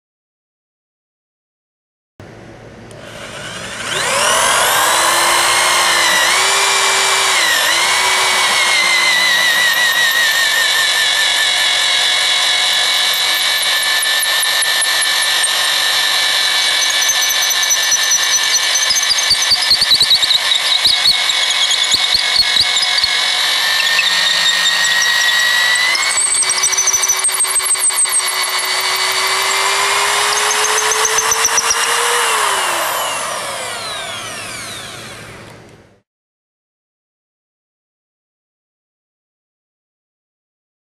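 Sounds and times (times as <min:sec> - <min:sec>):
electric drill boring into wood: 0:02.9 - 0:35.6.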